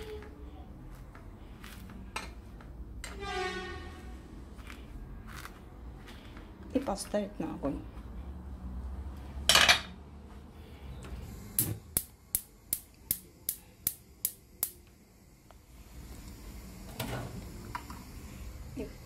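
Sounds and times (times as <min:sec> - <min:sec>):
kitchen clatter: 0:09.5 - 0:10.0
gas hob igniter clicking: 0:11.5 - 0:15.0.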